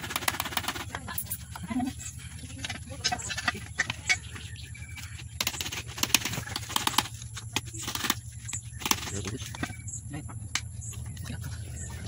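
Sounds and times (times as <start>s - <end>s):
hand tools clicking and knocking on metal: 0.0s - 1.9s.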